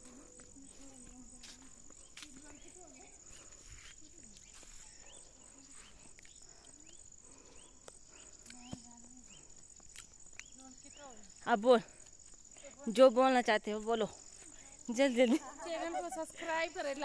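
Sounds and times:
insects chirping: 0:00.0 - 0:17.0.

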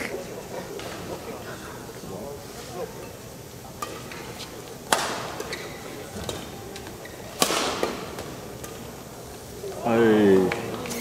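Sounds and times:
crowd murmur: 0:00.0 - 0:11.0
rackets hitting shuttlecock: 0:03.7 - 0:09.1.

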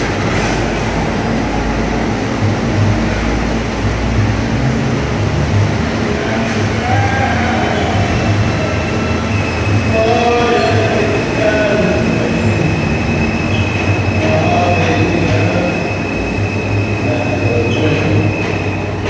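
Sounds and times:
train wheels rumbling on rail: 0:00.0 - 0:19.0
high wheel squeal: 0:06.2 - 0:19.0.

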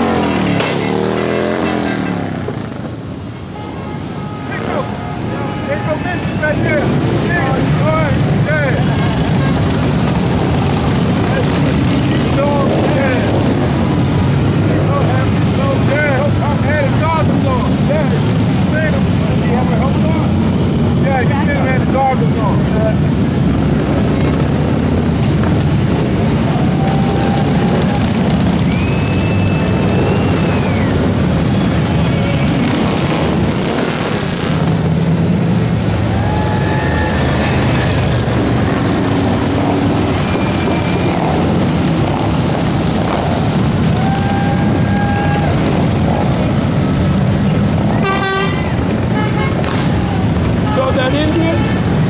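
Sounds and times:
motorcycle engines rumbling: 0:00.0 - 0:52.0.

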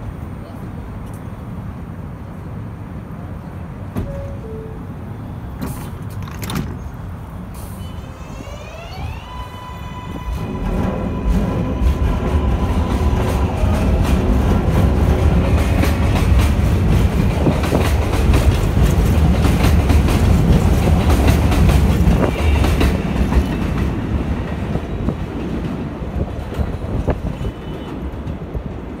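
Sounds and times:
heavy train rumble: 0:00.0 - 0:29.0
train wheels clacking: 0:10.5 - 0:25.8.

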